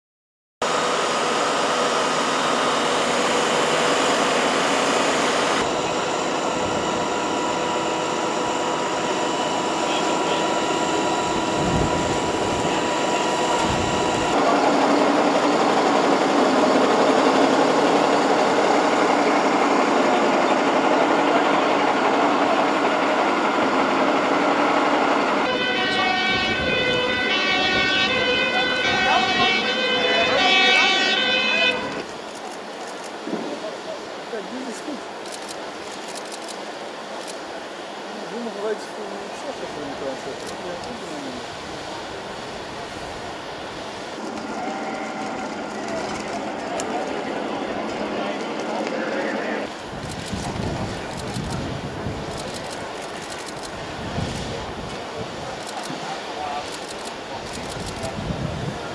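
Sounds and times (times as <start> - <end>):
fire engines droning with whine: 0.6 - 58.9
two-tone siren: 5.5 - 14.4, 25.4 - 32.0.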